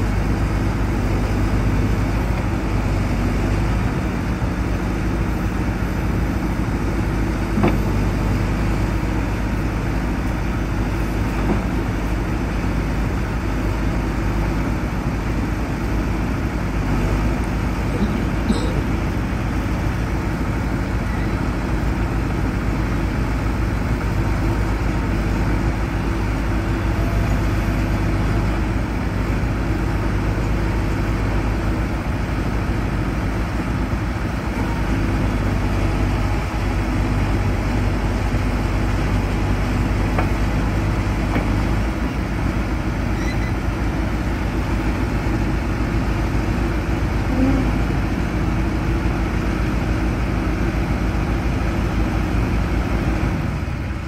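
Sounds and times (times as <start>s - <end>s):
diesel engine running: 0.0s - 54.0s.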